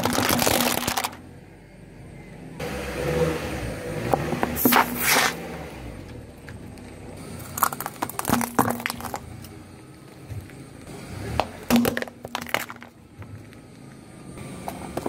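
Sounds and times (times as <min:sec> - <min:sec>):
tyre crushing brittle objects: 0:00.0 - 0:01.2, 0:07.4 - 0:09.6, 0:11.7 - 0:12.9.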